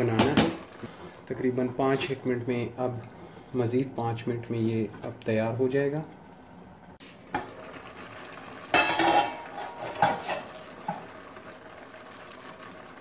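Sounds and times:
pot simmering hiss: 0:00.0 - 0:13.0
metal lid clattering: 0:08.7 - 0:11.0.

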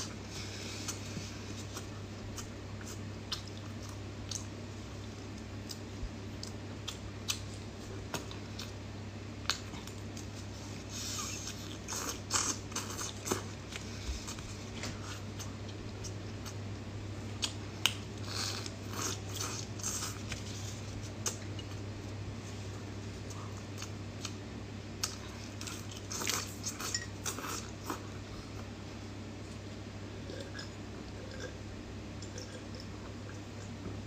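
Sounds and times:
person chewing: 0:00.0 - 0:08.8, 0:09.4 - 0:16.6, 0:17.2 - 0:28.7.

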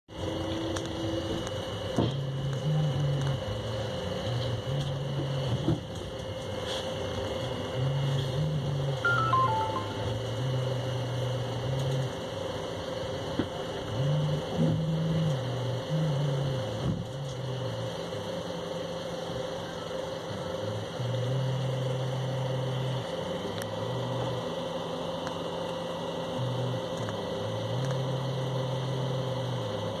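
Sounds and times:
train running noise on board: 0:00.1 - 0:03.4
low hum shifting pitch: 0:07.8 - 0:12.1.

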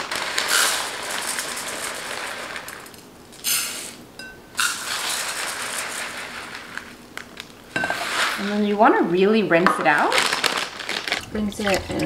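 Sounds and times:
rice grains pouring into pot: 0:00.0 - 0:04.0, 0:04.6 - 0:07.0.

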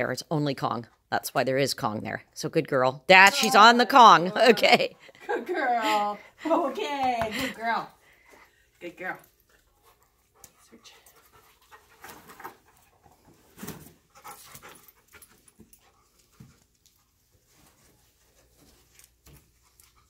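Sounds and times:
dog panting and sniffing: 0:07.9 - 0:20.0.

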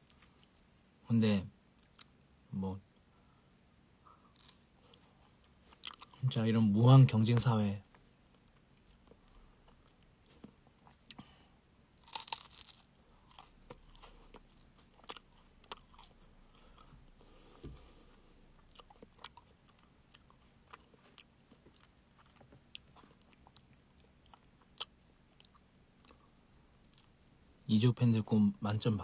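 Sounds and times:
crunching waffle cone: 0:12.0 - 0:16.1.

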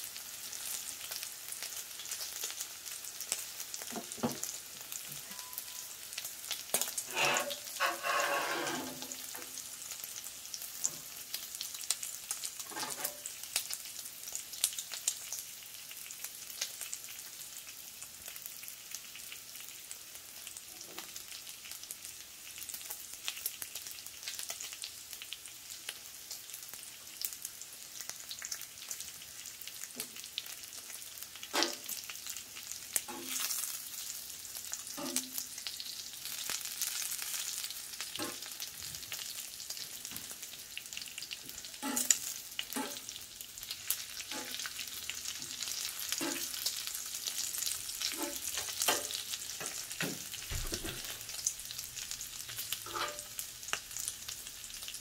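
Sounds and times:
bacon sizzling and crackling: 0:00.0 - 0:55.0
metal utensils knocking on griddle: 0:48.2 - 0:51.1.

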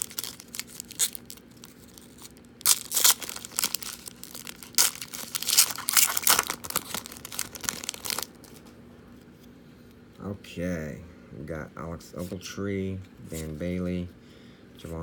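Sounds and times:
foil wrapper tearing and crinkling: 0:00.0 - 0:08.6.

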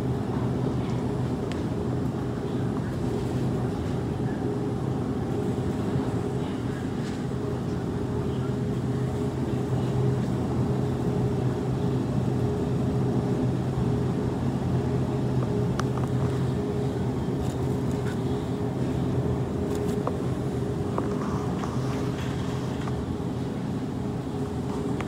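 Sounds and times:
refrigerated display case hum: 0:00.0 - 0:25.0.

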